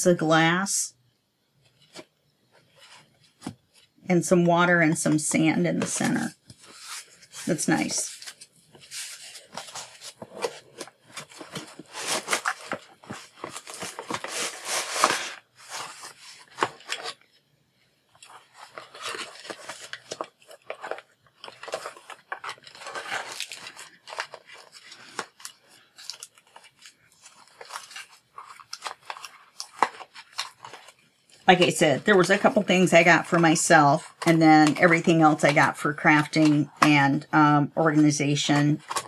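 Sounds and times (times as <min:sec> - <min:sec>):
foam sheet and cardboard rustling: 0:05.3 - 0:17.2, 0:18.2 - 0:37.0.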